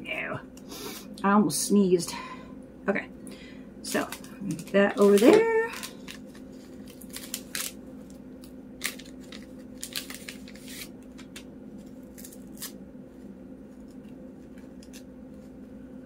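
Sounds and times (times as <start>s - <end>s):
steady low hum: 0.0s - 16.0s
paper wrappers tearing: 3.9s - 12.8s, 13.8s - 15.5s.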